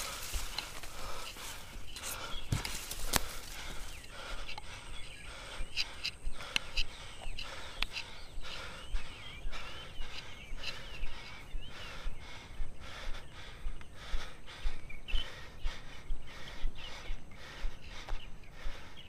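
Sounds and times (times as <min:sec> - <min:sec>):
footsteps on grass and gravel: 0:00.0 - 0:12.8
person panting hard: 0:00.0 - 0:19.0.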